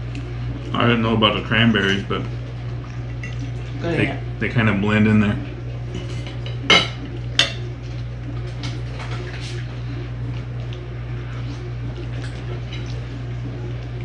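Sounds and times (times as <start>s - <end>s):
forks clinking on plates: 6.0s - 7.6s.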